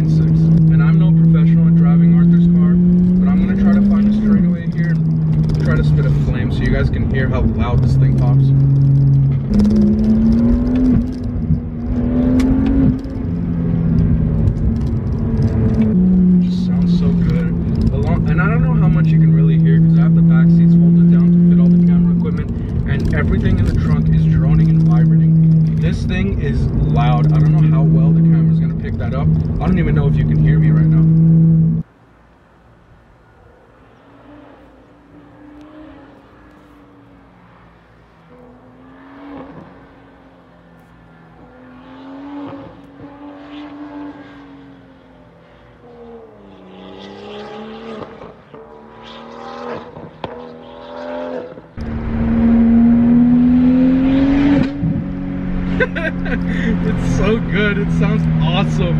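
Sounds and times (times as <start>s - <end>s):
gearbox upshifts: 0.0s - 16.1s
car engine accelerating: 0.0s - 31.9s, 33.5s - 58.9s.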